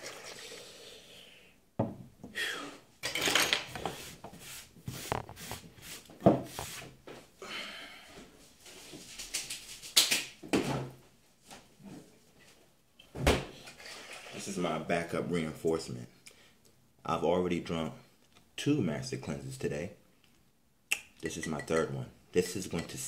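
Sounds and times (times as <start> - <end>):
bottle set down on wooden table: 1.8 - 2.1
kitchen items clattering: 3.0 - 4.0.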